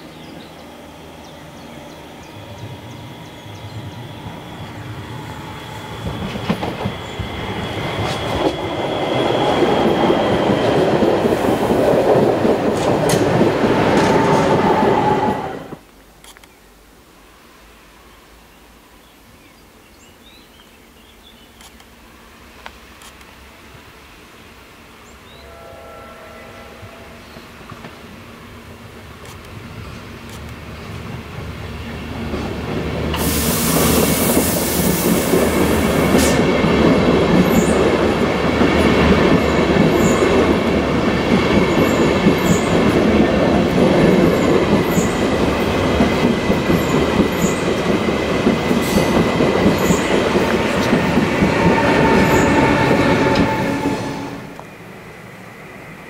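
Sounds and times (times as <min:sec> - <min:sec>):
train passing close by: 0:00.0 - 0:15.8, 0:21.9 - 0:56.0
wheels rumbling on rails: 0:00.1 - 0:15.8, 0:25.2 - 0:56.0
thin squealing tones: 0:25.4 - 0:27.9.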